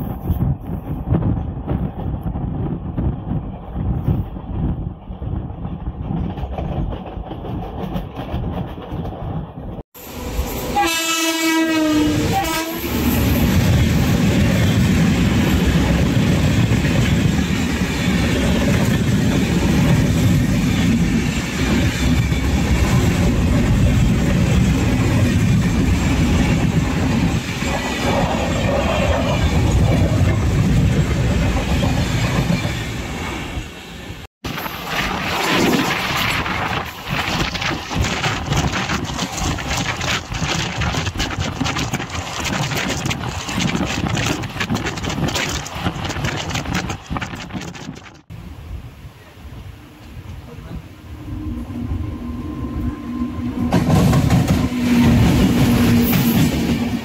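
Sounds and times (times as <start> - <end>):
train rumbling and wheel clatter: 0.0 - 57.0
locomotive horn: 10.6 - 13.2.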